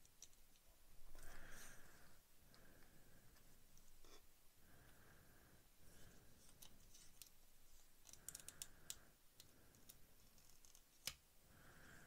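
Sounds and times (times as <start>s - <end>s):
tweezers and plastic parts clicking: 0.0s - 0.7s, 8.0s - 11.2s.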